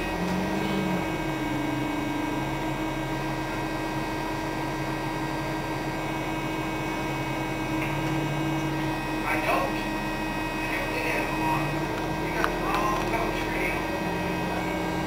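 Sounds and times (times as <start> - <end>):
bus engine and ventilation hum: 0.0 - 15.0.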